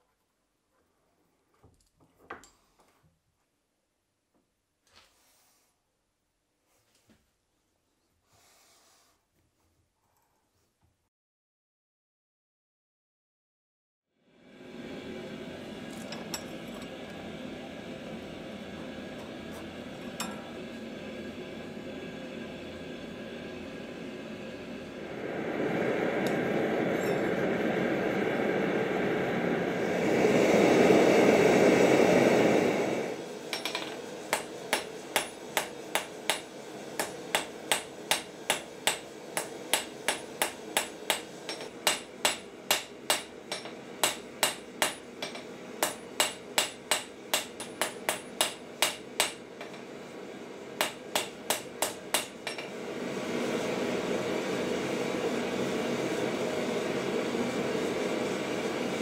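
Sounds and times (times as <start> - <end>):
gas forge burner rushing: 14.3 - 59.0
hammer striking steel on anvil: 20.2 - 20.5, 33.5 - 49.8, 50.8 - 52.7.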